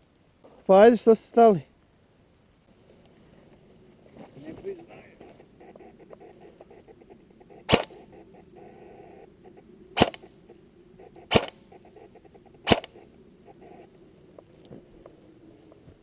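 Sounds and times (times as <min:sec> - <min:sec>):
airsoft rifle shots: 0:07.7 - 0:08.0, 0:10.0 - 0:10.3, 0:11.3 - 0:11.6, 0:12.6 - 0:13.0.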